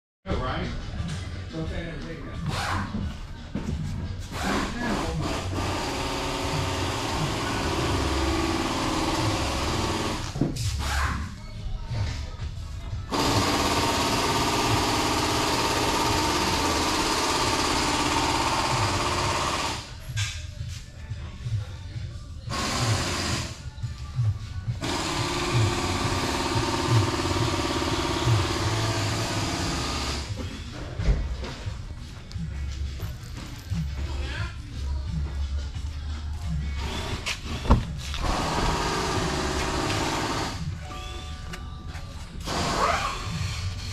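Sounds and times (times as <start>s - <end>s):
background music with steady beat: 0.2s - 43.9s.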